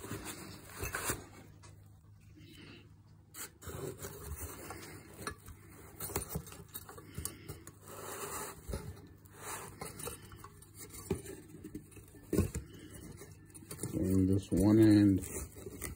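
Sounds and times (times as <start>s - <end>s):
cardboard and foam rustling: 0.0s - 1.9s, 3.3s - 15.9s.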